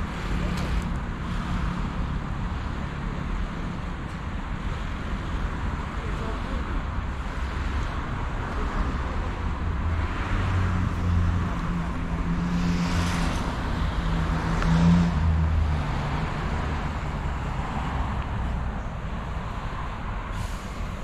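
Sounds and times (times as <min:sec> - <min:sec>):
low traffic rumble: 0:00.0 - 0:21.0
vehicle passing close by: 0:09.8 - 0:18.6.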